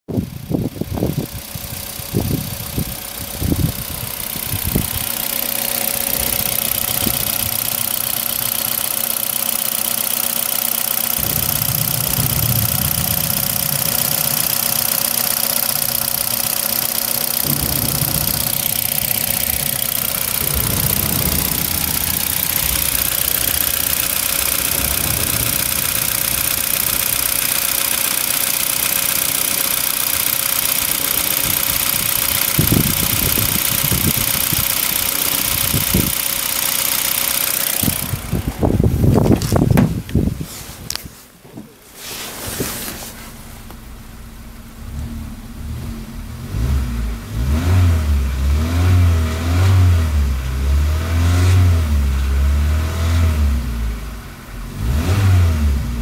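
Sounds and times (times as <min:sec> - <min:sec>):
engine knocks: 0:00.1 - 0:41.8
car engine idling: 0:00.1 - 0:56.0.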